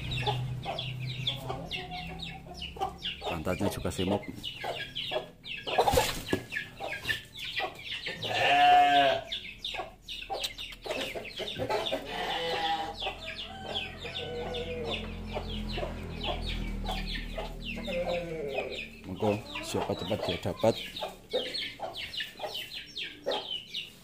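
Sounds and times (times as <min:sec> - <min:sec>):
chickens clucking: 0:00.0 - 0:24.0
drawn-out chicken call: 0:04.6 - 0:24.0.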